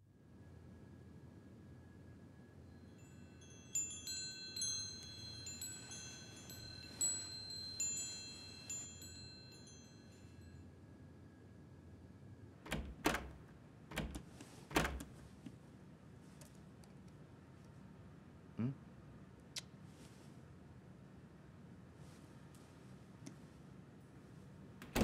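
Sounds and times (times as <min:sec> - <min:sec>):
high tinkling chimes: 0:02.7 - 0:10.6.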